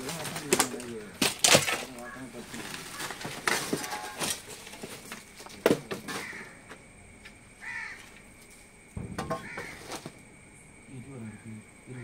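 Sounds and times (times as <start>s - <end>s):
caw-like bird call: 1.9s - 4.3s, 6.1s - 6.6s, 7.6s - 8.2s, 9.3s - 9.9s
wooden plank knocking on rubble: 9.0s - 9.9s.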